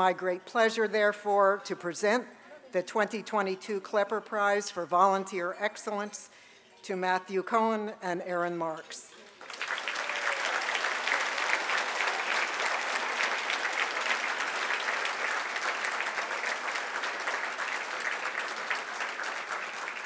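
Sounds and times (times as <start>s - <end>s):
audience applauding: 9.2s - 20.0s.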